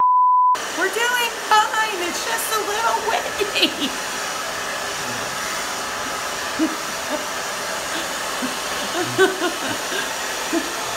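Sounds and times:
hair dryer blowing: 0:00.6 - 0:10.9
short vocal sounds: 0:05.0 - 0:05.4.

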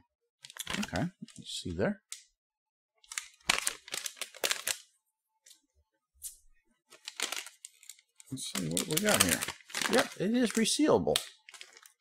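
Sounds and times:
plastic candy pouch crinkling: 0:00.4 - 0:01.4, 0:03.0 - 0:04.9, 0:06.9 - 0:12.0.

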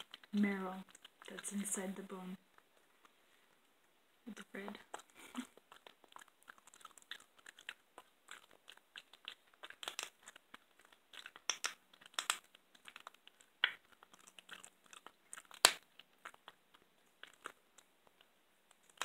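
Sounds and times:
cat crunching bones: 0:00.0 - 0:01.7, 0:04.8 - 0:19.0.

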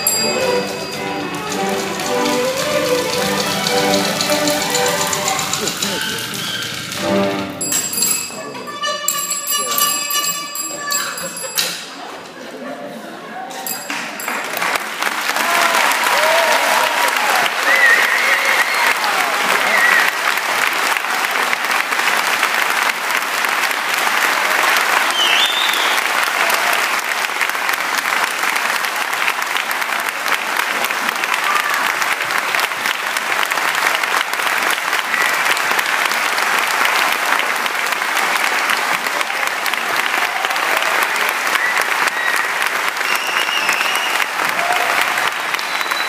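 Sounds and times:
audience applauding: 0:00.0 - 0:07.6, 0:13.9 - 0:46.0.

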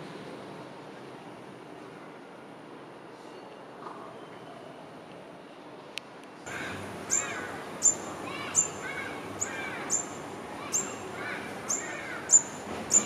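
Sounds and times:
bird high-pitched calls: 0:06.5 - 0:13.0
soft lower bird chirps: 0:06.5 - 0:13.0.

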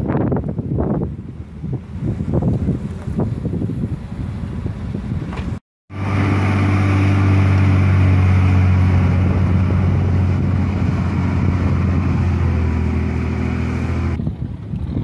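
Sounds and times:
heavy diesel engines running: 0:04.9 - 0:14.2.

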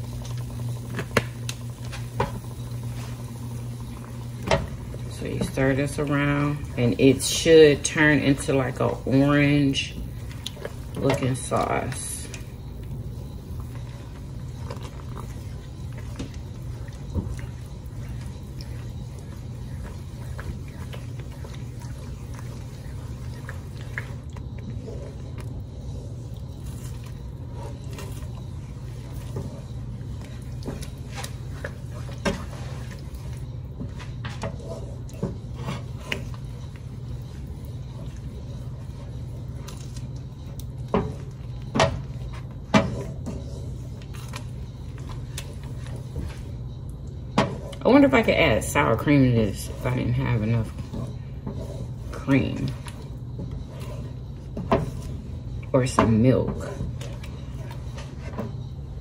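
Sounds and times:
steady low hum: 0:00.0 - 0:59.0
spoon stirring thick sauce: 0:01.8 - 0:59.0.

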